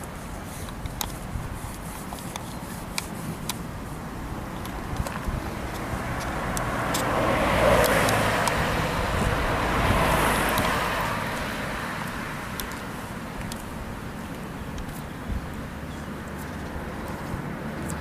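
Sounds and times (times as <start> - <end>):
vehicle passing: 3.2 - 18.0
faint clicks: 12.5 - 13.7.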